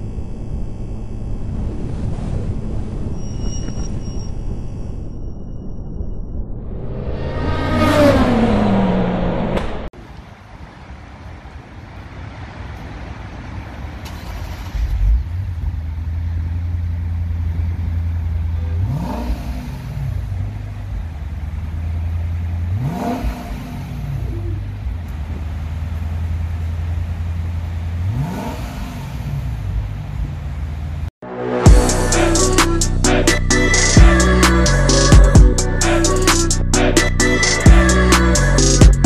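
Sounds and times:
car engine idling and revving: 0.0 - 4.8, 6.5 - 39.0
car passing by: 6.6 - 15.7.

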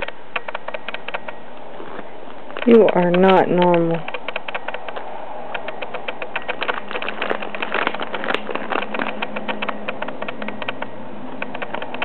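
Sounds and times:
plastic crinkling: 5.6 - 9.8.

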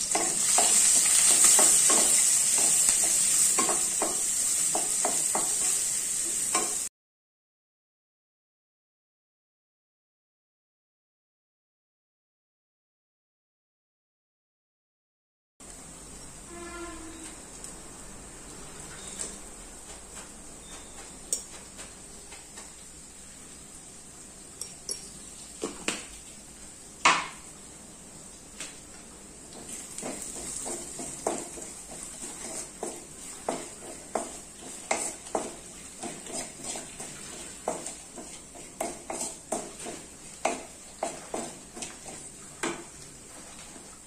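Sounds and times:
faint frying sizzle: 0.0 - 6.9, 15.6 - 44.0
steel spoon clinking on metal pan: 0.1 - 5.5
wooden spatula scraping pan: 29.7 - 43.8.

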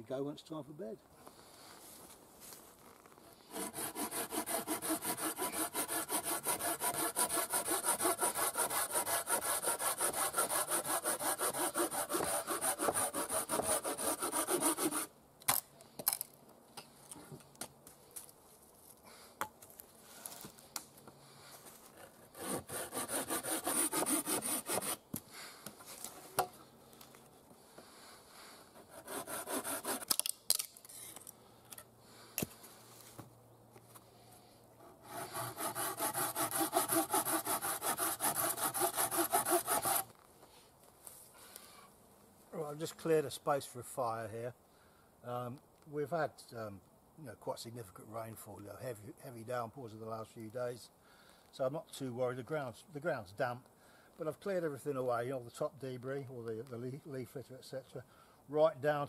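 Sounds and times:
hand saw cutting wood: 3.5 - 15.1, 22.3 - 25.0, 28.8 - 30.3, 34.8 - 40.1.

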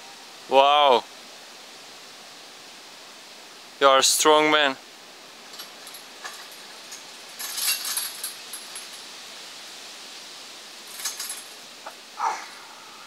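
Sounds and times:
steady hiss: 0.0 - 13.0
metal rings clinking and jingling: 5.4 - 9.1, 10.8 - 11.6.

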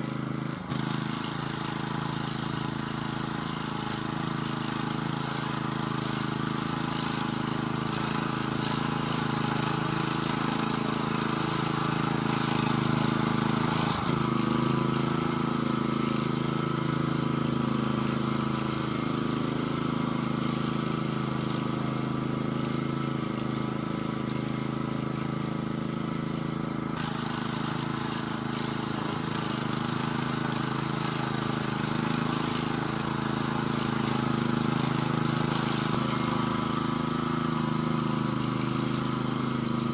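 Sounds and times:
walking tractor engine running: 0.0 - 39.9.

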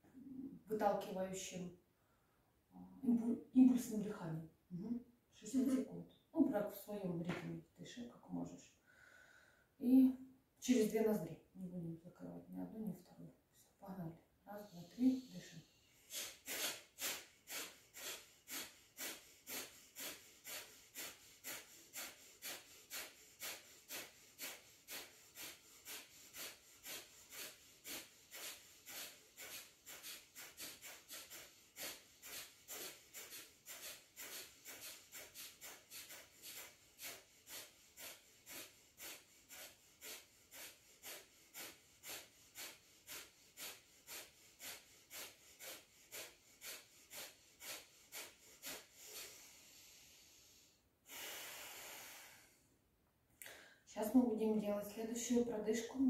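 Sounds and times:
sharp nasal exhalations: 14.6 - 52.7, 53.4 - 53.9.

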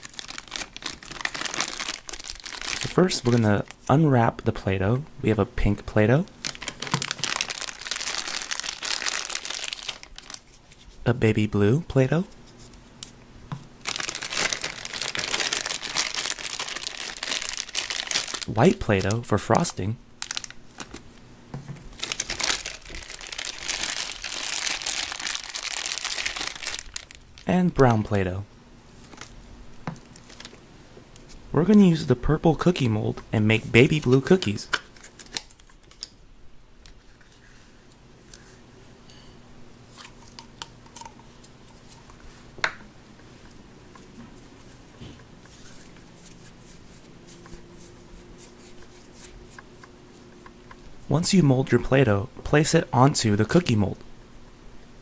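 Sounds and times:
plastic wrapper crinkling: 0.0 - 3.9, 6.3 - 10.8, 13.8 - 21.2, 21.9 - 27.5, 29.0 - 30.6, 33.8 - 36.1
hands rubbing modelling clay: 44.6 - 50.3.

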